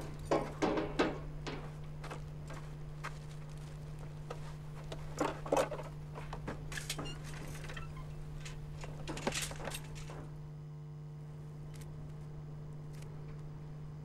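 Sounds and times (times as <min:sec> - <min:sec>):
rustling and knocking: 0:00.0 - 0:01.8
steady low hum: 0:00.0 - 0:14.0.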